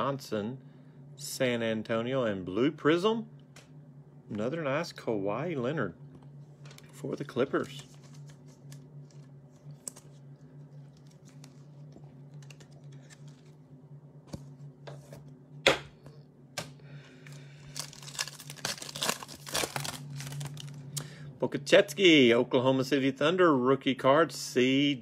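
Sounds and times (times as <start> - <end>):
low hum: 0.0 - 25.0
trading cards shuffled: 6.6 - 13.6
foil pack tearing and crinkling: 17.6 - 20.8.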